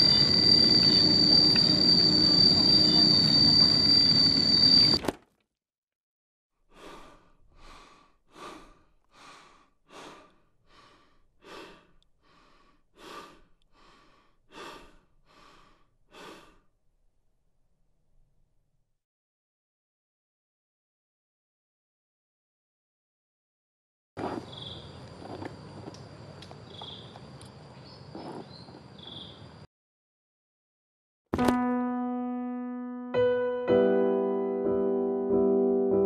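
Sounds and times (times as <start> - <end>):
high-pitched drone: 0.0 - 5.0.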